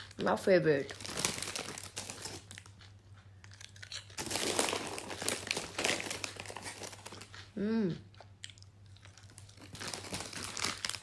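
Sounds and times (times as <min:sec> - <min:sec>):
chips packet crinkling: 0:00.8 - 0:02.9, 0:03.5 - 0:07.5, 0:09.0 - 0:11.0.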